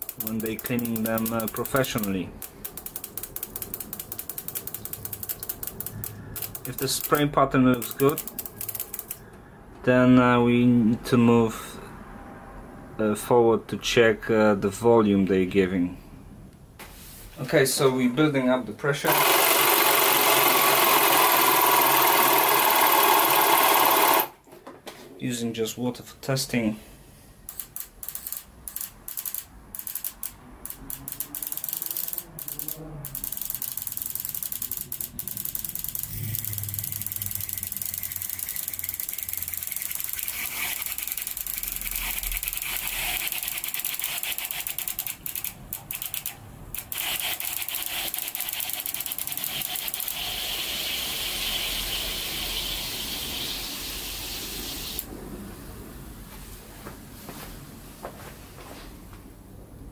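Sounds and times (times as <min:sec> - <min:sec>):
fuel injectors ticking: 0:00.0 - 0:09.3, 0:27.5 - 0:53.6.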